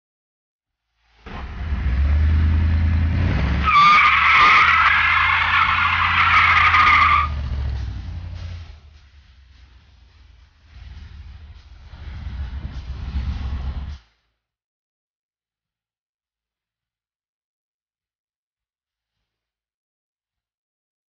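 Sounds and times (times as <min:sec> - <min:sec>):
engine running hard: 0:01.2 - 0:14.0
tires squealing: 0:01.2 - 0:14.0.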